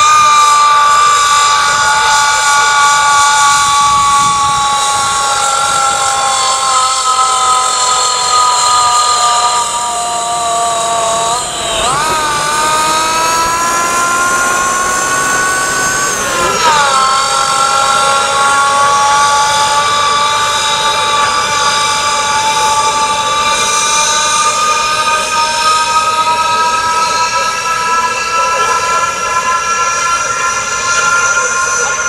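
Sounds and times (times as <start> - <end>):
supercharger whining: 0.0 - 32.0
diesel tractor engine: 7.0 - 25.4.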